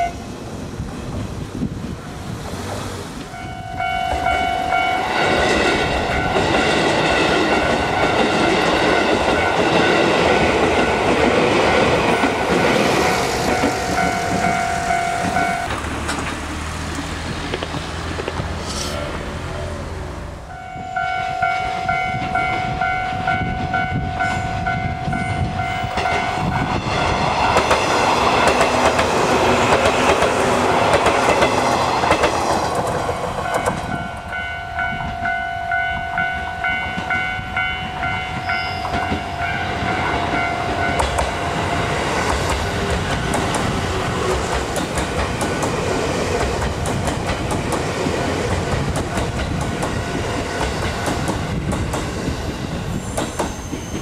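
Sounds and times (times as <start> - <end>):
level crossing warning alarm: 3.4 - 6.7, 7.5 - 15.8, 20.5 - 26.8, 33.2 - 41.9
train wheels clattering: 4.0 - 18.8, 21.6 - 34.4, 36.9 - 54.0.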